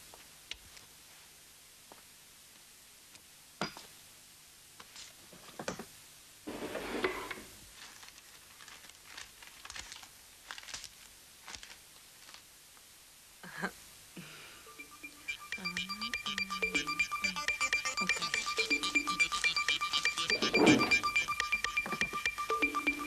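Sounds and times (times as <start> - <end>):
papers rustling: 6.5 - 12.5.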